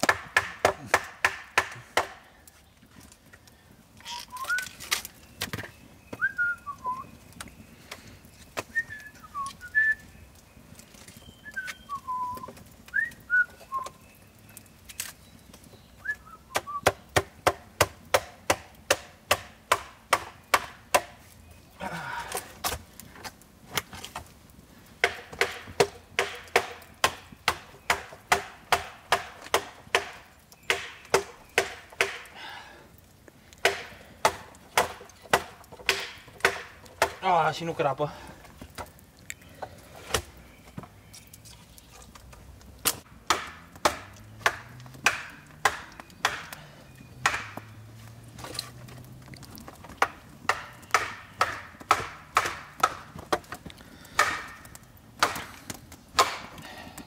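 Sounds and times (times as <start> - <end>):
high whistled chirps: 4.1 - 4.8, 6.0 - 7.2, 8.7 - 10.2, 11.2 - 14.6, 16.0 - 16.9.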